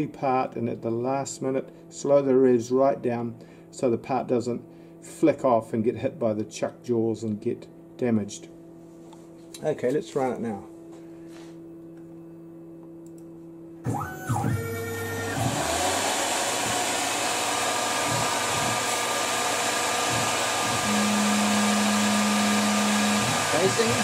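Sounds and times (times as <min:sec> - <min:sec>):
low machine hum: 0:00.0 - 0:24.0
lathe spindle whine and rushing: 0:13.9 - 0:24.0
lathe tool cutting tone: 0:13.9 - 0:24.0.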